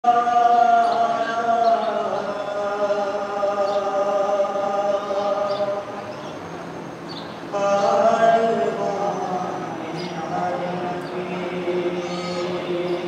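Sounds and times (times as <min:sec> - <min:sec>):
man chanting: 0:07.5 - 0:13.0.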